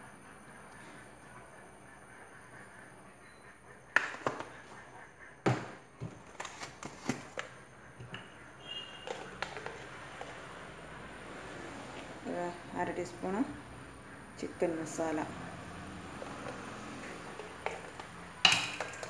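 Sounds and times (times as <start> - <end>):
utensils knocking on countertop: 18.4 - 19.0.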